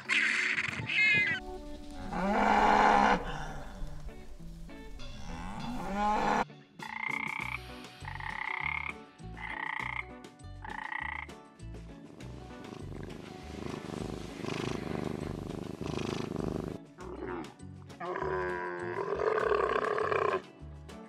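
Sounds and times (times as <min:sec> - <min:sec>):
cow mooing: 0:01.8 - 0:06.4
frog calling: 0:02.0 - 0:11.3.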